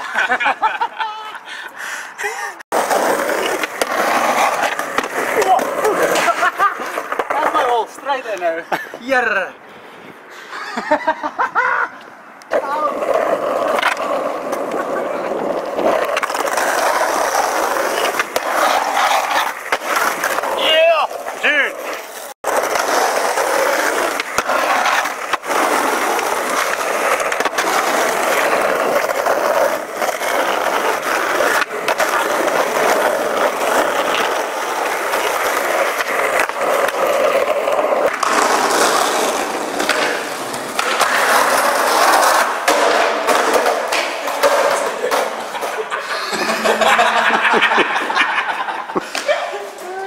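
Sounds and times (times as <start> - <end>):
skateboard wheels rolling on asphalt: 0.0 - 50.0
skateboard popping and landing: 2.7 - 7.8, 12.4 - 46.7.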